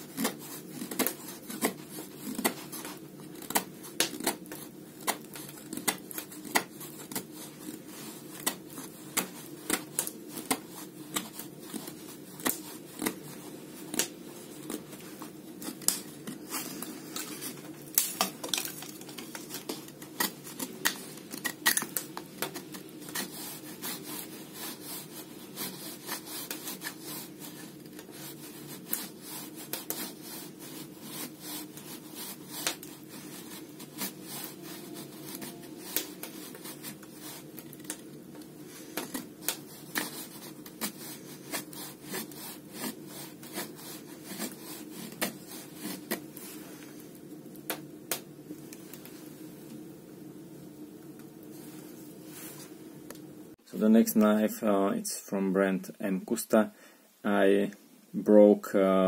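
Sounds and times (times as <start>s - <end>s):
knife scraping wooden stick: 0.0s - 47.1s.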